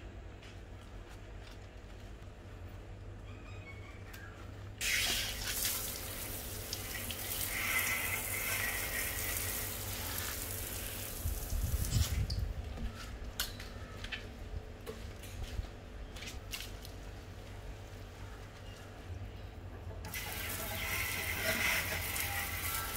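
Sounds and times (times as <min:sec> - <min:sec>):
hose water spraying on wheel: 0:04.8 - 0:12.3, 0:20.1 - 0:22.9.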